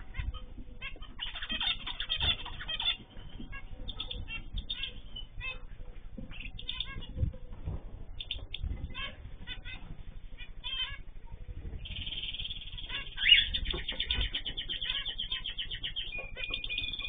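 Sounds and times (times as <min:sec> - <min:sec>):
birds chirping and chattering: 0:00.0 - 0:17.0
wings fluttering: 0:00.0 - 0:17.0
loud bird call: 0:11.8 - 0:17.0.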